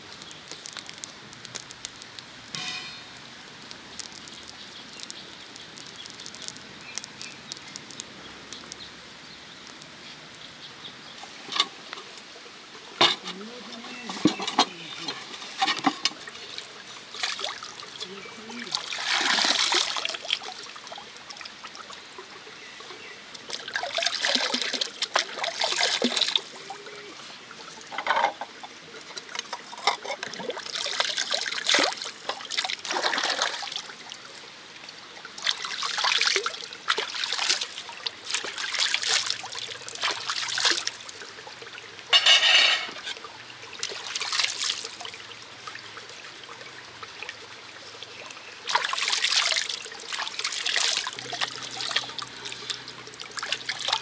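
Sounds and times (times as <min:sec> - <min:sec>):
water pouring and trickling: 0:00.0 - 0:54.0.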